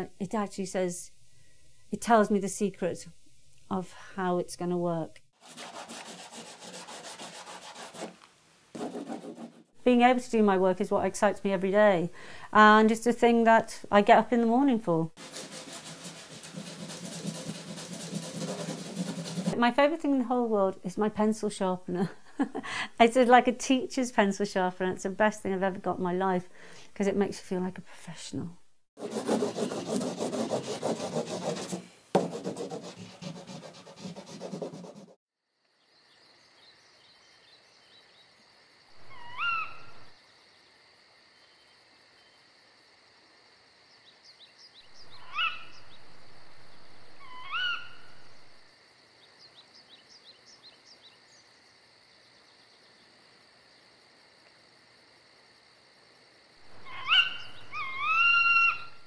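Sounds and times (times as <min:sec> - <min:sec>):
pencil sharpener grinding: 0:05.4 - 0:09.6, 0:15.2 - 0:19.6, 0:29.0 - 0:35.2
insect-like night ambience: 0:09.8 - 0:14.3, 0:15.6 - 0:25.2, 0:35.4 - 0:59.0
short rising calls: 0:39.0 - 0:40.1, 0:45.0 - 0:48.6, 0:56.7 - 0:59.0.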